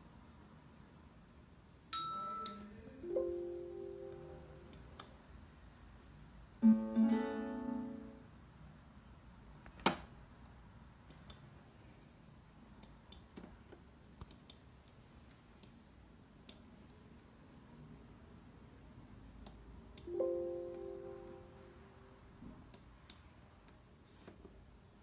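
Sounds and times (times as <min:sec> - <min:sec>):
strummed guitar alert chord: 0:06.6 - 0:08.2, 0:20.1 - 0:21.8
light mouse clicks: 0:11.0 - 0:11.5, 0:14.2 - 0:15.8, 0:22.6 - 0:24.4.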